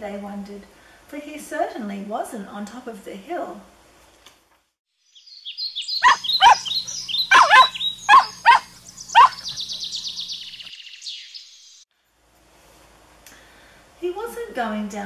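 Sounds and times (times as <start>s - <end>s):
high chirps: 5.2s - 11.6s.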